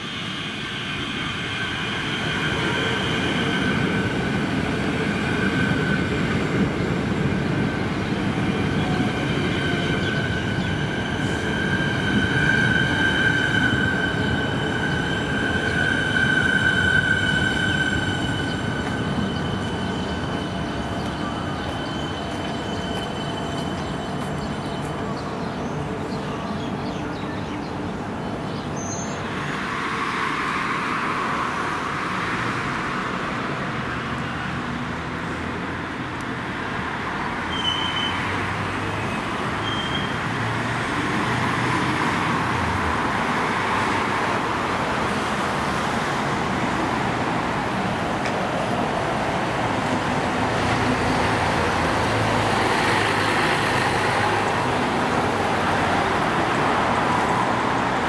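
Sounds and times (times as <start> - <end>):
road traffic: 0.0 - 58.0
bus engines running: 31.7 - 58.0.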